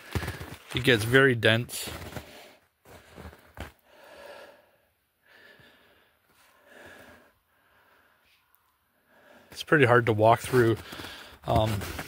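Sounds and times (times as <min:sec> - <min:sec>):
soft breaths: 0:02.1 - 0:09.7, 0:10.5 - 0:11.7.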